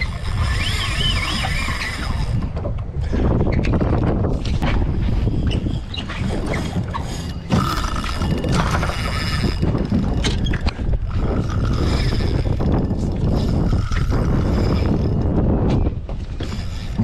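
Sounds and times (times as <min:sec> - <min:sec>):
fishing reel drag buzzing: 0:00.0 - 0:02.5, 0:07.0 - 0:15.2
wind: 0:00.0 - 0:17.0.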